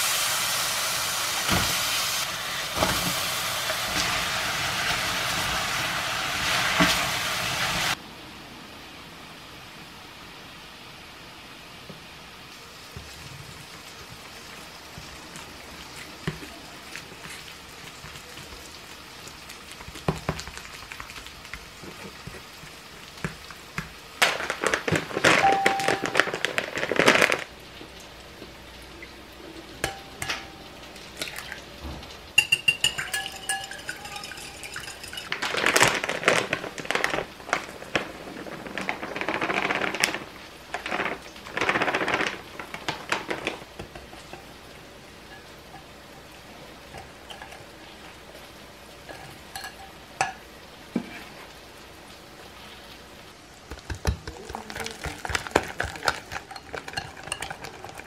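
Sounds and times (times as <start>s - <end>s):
plastic bag crinkling: 24.2s - 27.5s, 35.2s - 43.8s, 54.4s - 58.0s
glass bowl clinking: 25.3s - 26.4s, 29.8s - 30.8s, 32.4s - 35.6s, 49.1s - 50.4s
dry mix pouring into bowl: 32.9s - 43.6s.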